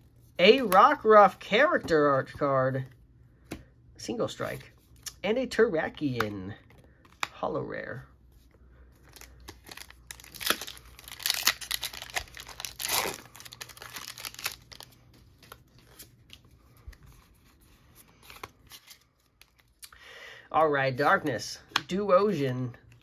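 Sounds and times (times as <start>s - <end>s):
foil wrapper tearing and crinkling: 9.1s - 16.1s.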